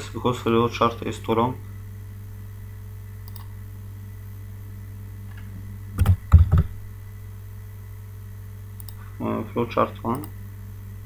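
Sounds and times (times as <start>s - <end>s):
low electrical hum: 0.0s - 11.0s
keyboard and mouse clicks: 3.3s - 3.5s.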